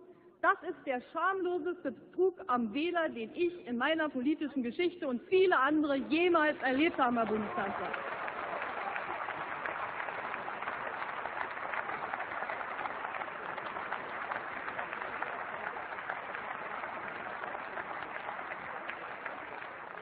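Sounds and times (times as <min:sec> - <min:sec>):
applause: 0:06.4 - 0:20.0.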